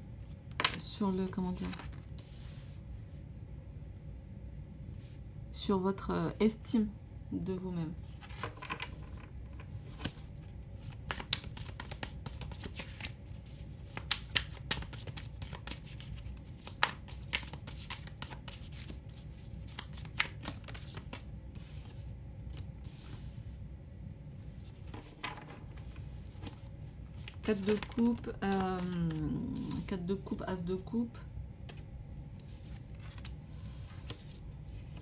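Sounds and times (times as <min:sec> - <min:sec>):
cards rustling: 0:08.2 - 0:22.7, 0:24.6 - 0:29.9
cards being shuffled: 0:08.2 - 0:23.2, 0:24.6 - 0:29.9, 0:32.4 - 0:35.0.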